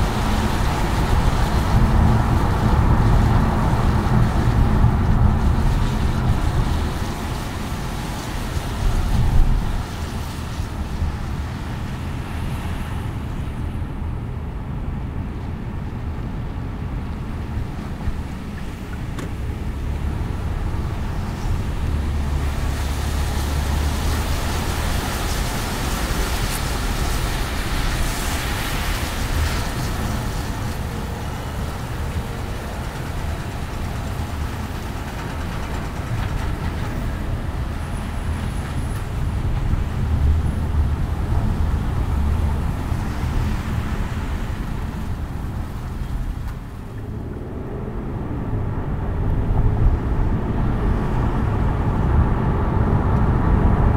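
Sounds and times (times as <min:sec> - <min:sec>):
road hiss: 0:00.0 - 0:53.9
tyre and engine rumble: 0:00.0 - 0:53.9.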